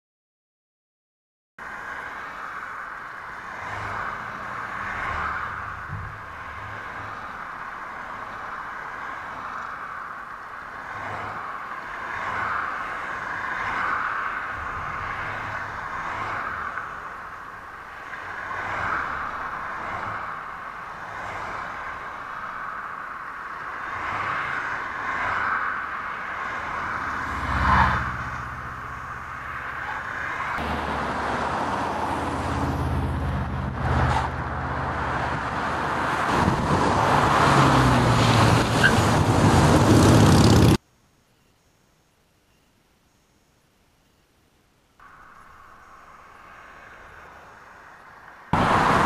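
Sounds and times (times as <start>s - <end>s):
cars passing on highway: 1.6s - 40.8s, 45.0s - 49.0s
loud close car pass: 23.8s - 40.8s, 45.0s - 49.0s.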